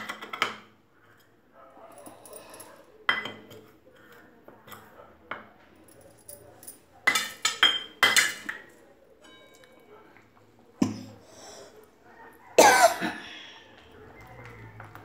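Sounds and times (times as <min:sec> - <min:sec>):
steel bowl and spoon clinking: 0:06.3 - 0:10.0.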